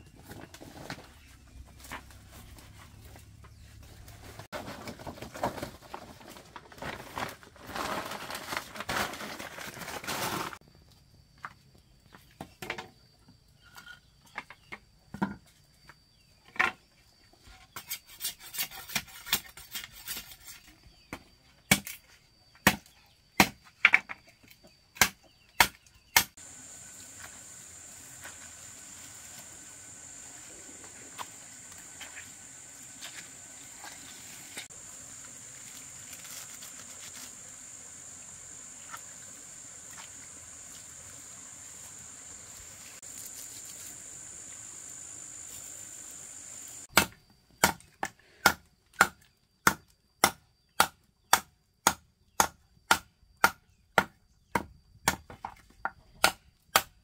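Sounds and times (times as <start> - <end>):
insects chirring: 5.5 - 48.1.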